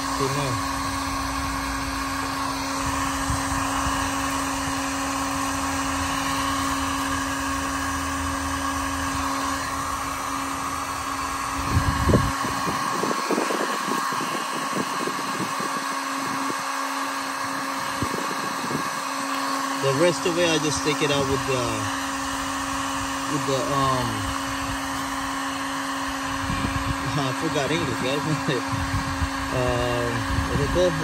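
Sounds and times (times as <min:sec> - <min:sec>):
heat gun fan hum: 0:00.0 - 0:31.0.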